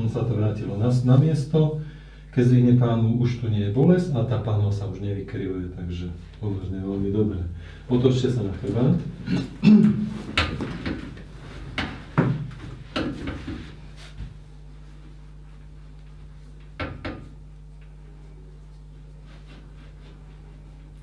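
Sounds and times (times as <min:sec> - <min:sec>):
steady low hum: 0:00.0 - 0:21.0
treatment table knocks and creaks: 0:10.2 - 0:13.8.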